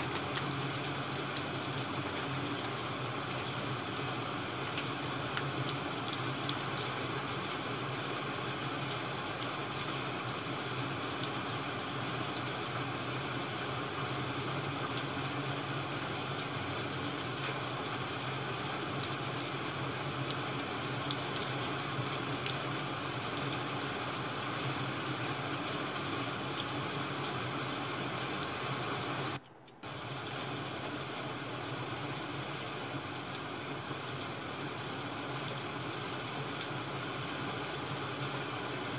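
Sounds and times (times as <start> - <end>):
crackling firewood: 0.0 - 24.4
steady rain: 0.0 - 38.9.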